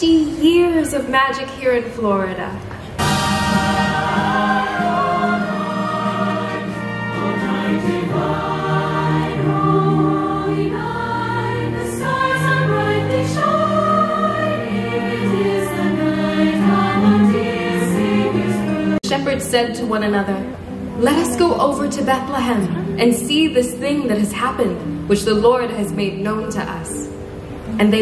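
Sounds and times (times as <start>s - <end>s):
choir singing with orchestra: 3.0s - 19.0s.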